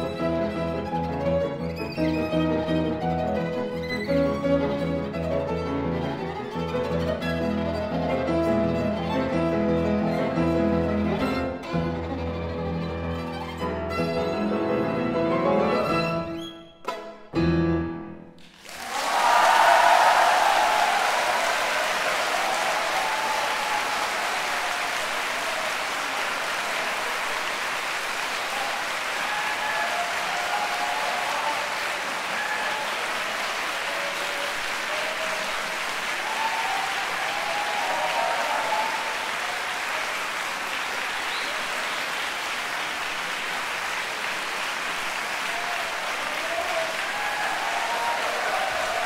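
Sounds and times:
audience applauding: 18.4s - 49.0s
crowd cries: 18.8s - 27.6s, 28.3s - 40.3s, 45.3s - 49.0s.

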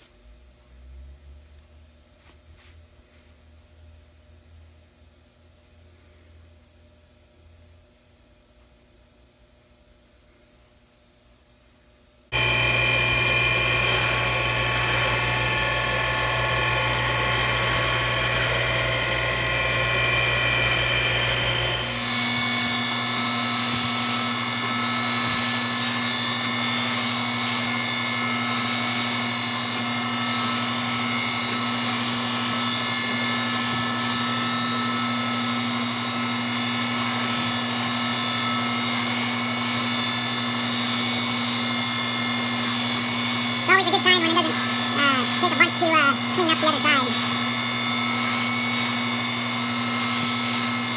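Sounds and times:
surface grinder grinding steel: 12.4s - 50.9s.

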